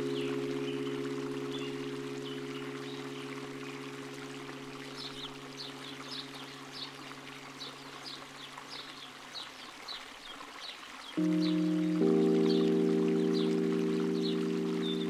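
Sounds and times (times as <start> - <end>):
low music chord: 0.0 - 7.7, 11.2 - 15.0
water trickling: 0.0 - 15.0.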